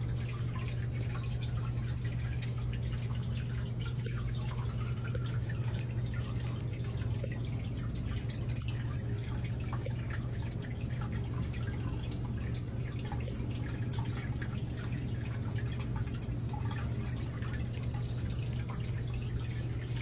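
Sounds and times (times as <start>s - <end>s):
low hum: 0.0s - 20.0s
water dripping: 0.0s - 20.0s.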